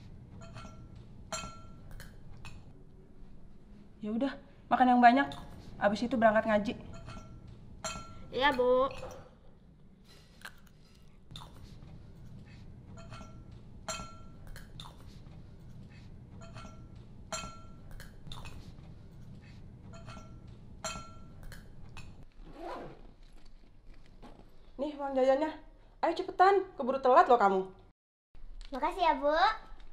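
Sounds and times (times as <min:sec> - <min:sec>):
cutlery clinking on a plate: 0:12.9 - 0:15.1, 0:16.4 - 0:18.7, 0:19.9 - 0:22.2.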